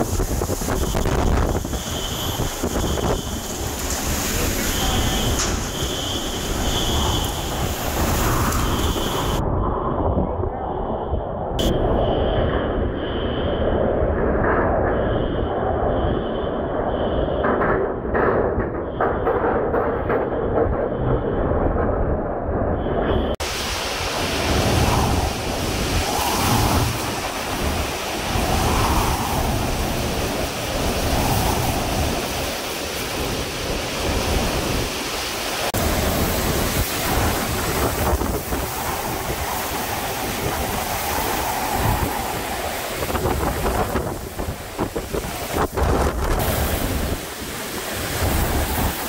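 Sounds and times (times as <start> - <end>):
driving rain: 0.0 - 9.4, 23.3 - 49.0
hurricane wind: 0.0 - 49.0
wind buffeting microphone: 0.0 - 49.0.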